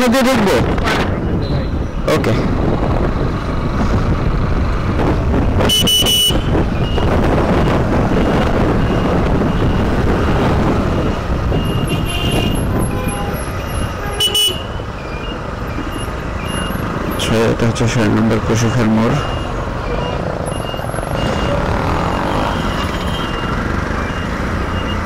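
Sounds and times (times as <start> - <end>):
motorcycle horn toot: 5.6 - 6.5, 11.6 - 14.8
motorcycle engine: 19.2 - 25.0.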